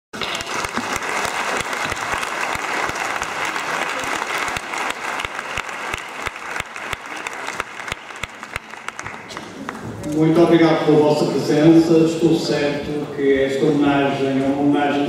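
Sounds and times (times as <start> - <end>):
audience applauding: 0.2 - 10.1.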